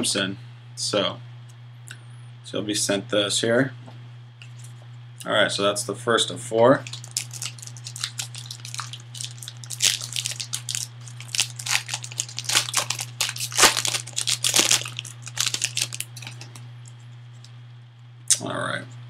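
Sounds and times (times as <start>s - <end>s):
steady low hum: 0.0s - 19.0s
foil wrapper tearing and crinkling: 6.8s - 16.6s.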